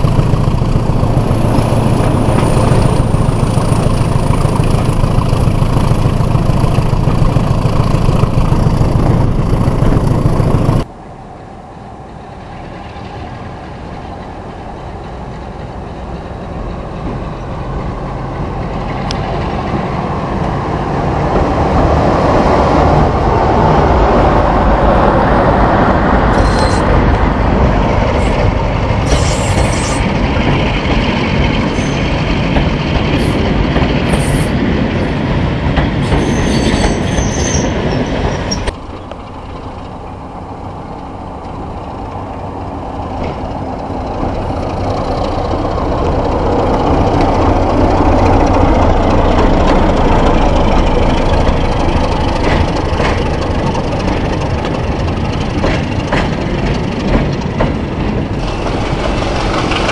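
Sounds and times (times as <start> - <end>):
diesel locomotive rumble: 0.0 - 59.9
high-pitched wheel squeals: 26.3 - 27.0, 36.0 - 38.7.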